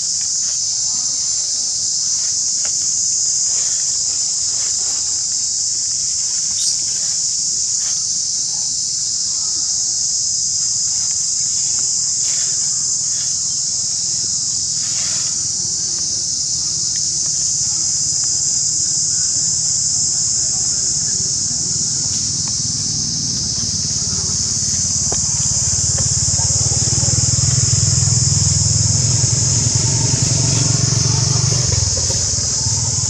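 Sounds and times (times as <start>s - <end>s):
insects droning: 0.0s - 33.0s.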